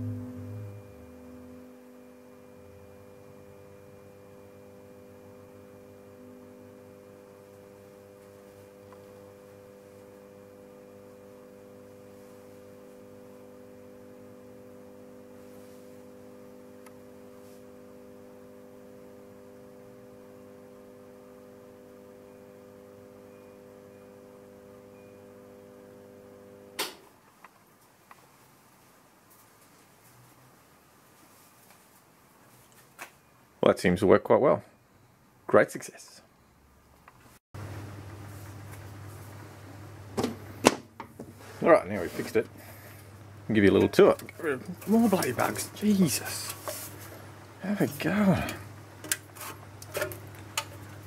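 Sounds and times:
light ballast mains hum: 0.0s - 29.4s, 32.7s - 51.0s.

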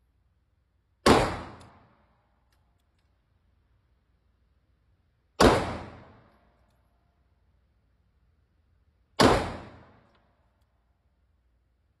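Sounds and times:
pistol shots echoing indoors: 0.8s - 3.4s, 5.1s - 7.2s, 8.8s - 10.7s.

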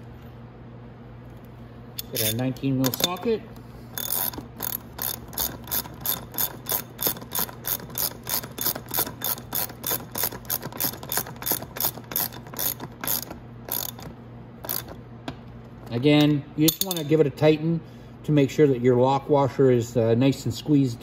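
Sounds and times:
ratchet wrench clicking: 2.0s - 3.3s, 3.9s - 15.0s.

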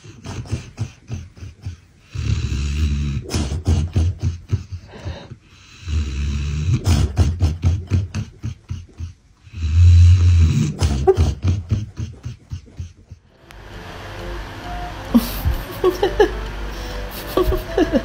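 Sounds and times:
dog snoring: 0.0s - 4.7s, 5.6s - 11.8s.

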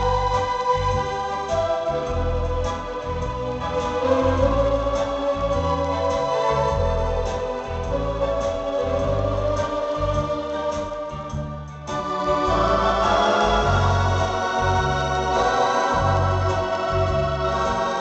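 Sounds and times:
accordion playing slow tune: 1.3s - 6.4s.

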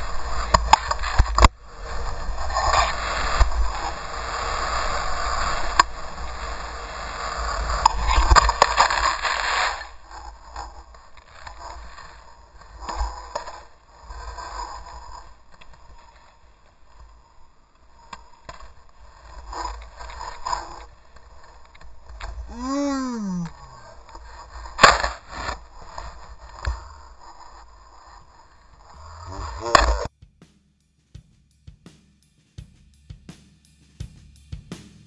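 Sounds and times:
snowboard sliding through powder: 0.0s - 30.1s.

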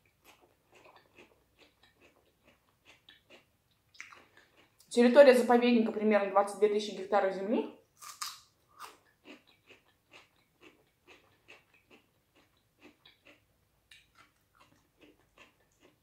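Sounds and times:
crisp chewing crunches: 0.2s - 4.9s, 8.0s - 16.0s
person biting vegetables: 8.0s - 16.0s.

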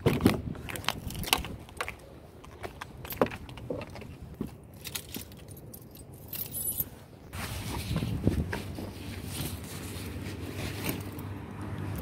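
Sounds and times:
keys jangling: 4.7s - 6.9s.

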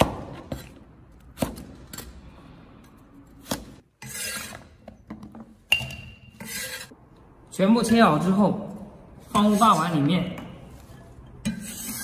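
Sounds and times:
blade scraping board: 4.0s - 4.8s, 6.4s - 7.0s, 10.9s - 12.0s.

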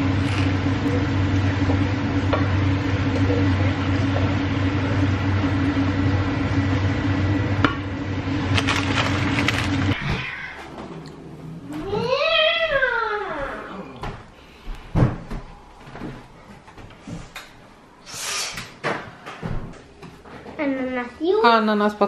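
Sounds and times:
appliance motor humming: 0.0s - 12.2s.

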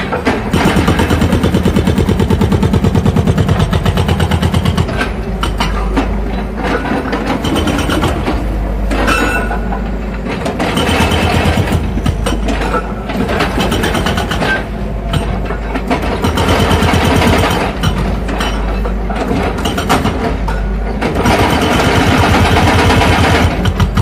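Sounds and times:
hydraulic breaker hammer pounding concrete: 0.0s - 24.0s.

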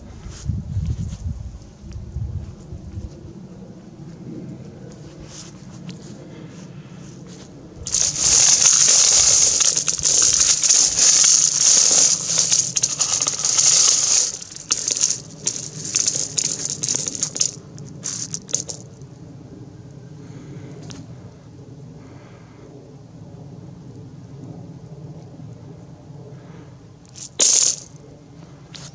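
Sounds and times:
coins jingling in a metal bucket: 7.9s - 18.9s, 27.1s - 27.9s.

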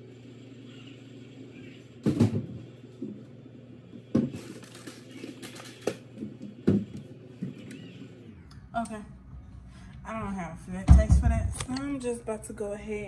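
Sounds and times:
items clattering: 4.1s - 7.6s.

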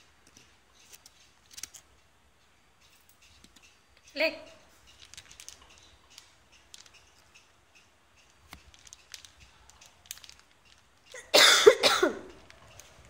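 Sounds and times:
kitten paws crinkling plastic: 0.8s - 1.9s, 4.7s - 7.5s, 8.2s - 11.3s, 12.2s - 13.0s.

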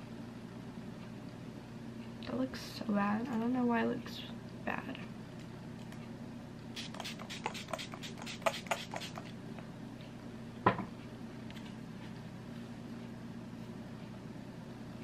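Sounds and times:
spray bottle spritzing: 6.8s - 9.3s.

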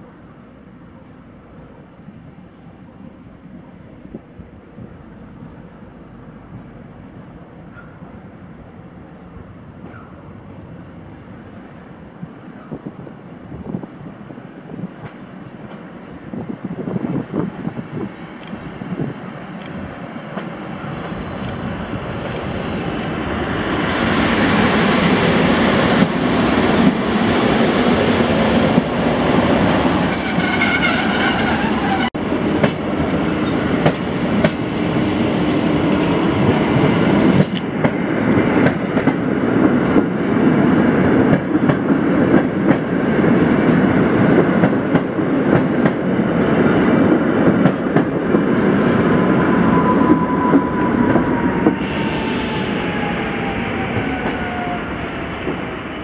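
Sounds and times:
train approaching: 0.0s - 56.0s
high squeal: 28.6s - 32.2s, 49.3s - 55.1s.

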